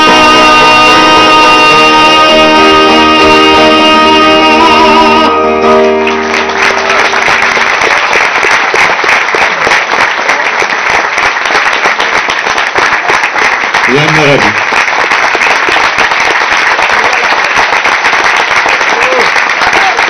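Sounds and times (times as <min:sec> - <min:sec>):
live song held chord: 0:00.0 - 0:08.8
audience applause: 0:04.6 - 0:20.0.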